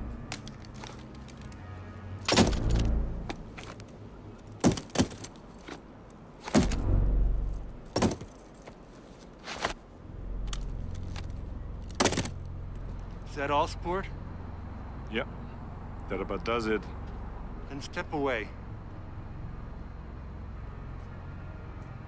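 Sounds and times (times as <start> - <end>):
heavy low thud: 6.6 - 8.2.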